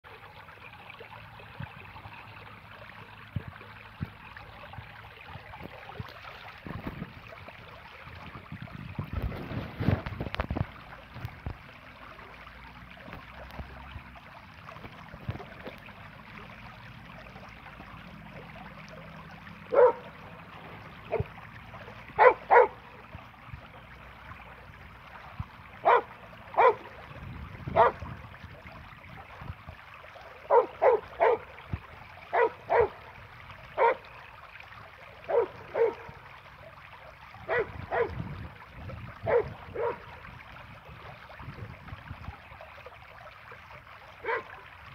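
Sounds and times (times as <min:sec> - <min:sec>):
water trickling in a channel: 0:00.0 - 0:44.9
dog barking: 0:19.7 - 0:20.0, 0:22.2 - 0:22.8, 0:25.8 - 0:26.8, 0:27.8 - 0:28.0, 0:30.5 - 0:31.4, 0:32.3 - 0:33.0, 0:33.8 - 0:34.0, 0:35.3 - 0:36.0, 0:37.5 - 0:38.2, 0:39.3 - 0:40.0, 0:44.2 - 0:44.5.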